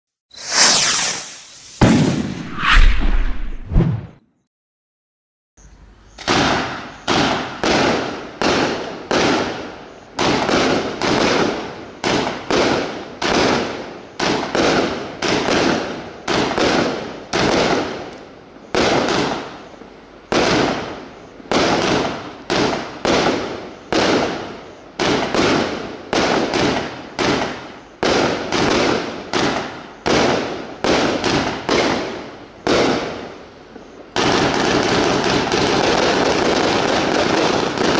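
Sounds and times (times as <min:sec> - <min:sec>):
fireworks cracking: 0:00.4 - 0:03.7, 0:34.2 - 0:37.9.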